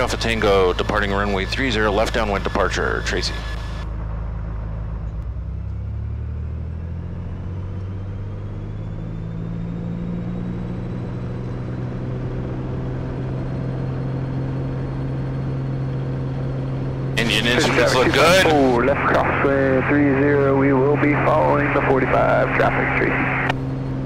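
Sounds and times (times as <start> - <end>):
aircraft engine and propeller drone: 0.0 - 24.0.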